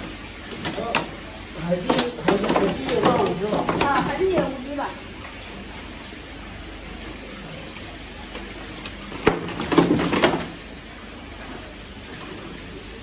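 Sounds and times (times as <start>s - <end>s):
water splashing: 0.0s - 13.0s.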